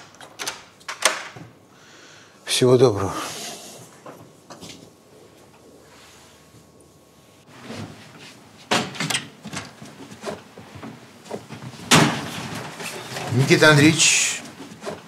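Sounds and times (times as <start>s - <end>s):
door thud: 11.9s - 12.4s.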